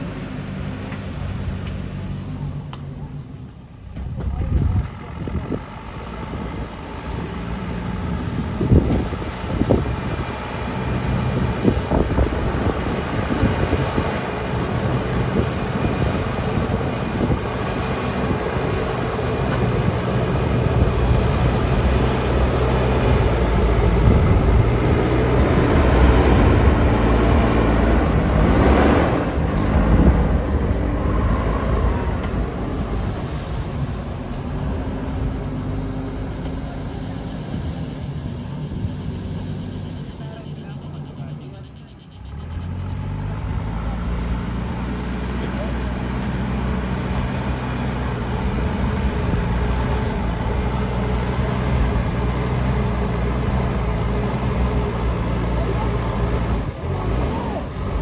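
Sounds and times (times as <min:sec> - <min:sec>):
engine humming: 0:00.0 - 0:58.0.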